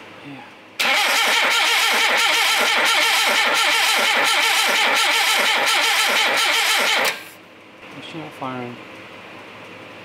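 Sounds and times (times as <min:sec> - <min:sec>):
starter motor cranking engine: 0:00.8 - 0:07.4.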